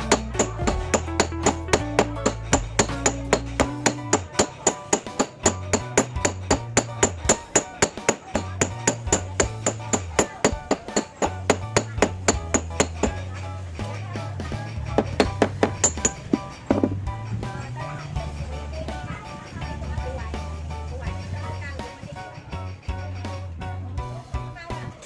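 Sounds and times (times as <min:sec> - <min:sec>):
hammer striking metal: 0:00.0 - 0:14.0, 0:14.7 - 0:17.1.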